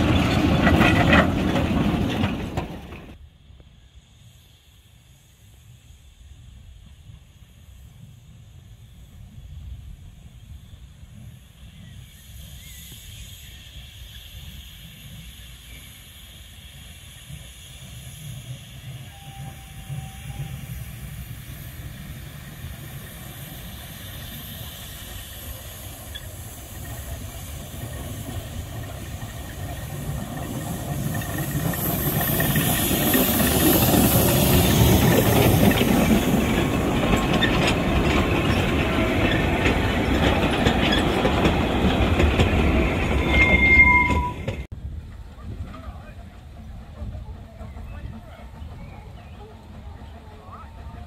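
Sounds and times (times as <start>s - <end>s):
wagons rattling over rail joints: 0.0s - 3.2s, 17.3s - 51.0s
steam locomotive hiss and exhaust: 0.0s - 51.0s.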